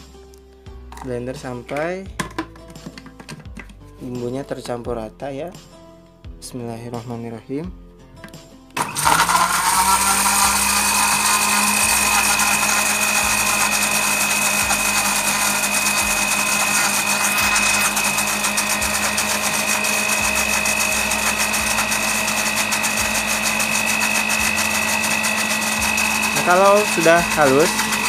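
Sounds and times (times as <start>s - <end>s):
blender motor running: 8.8s - 28.0s.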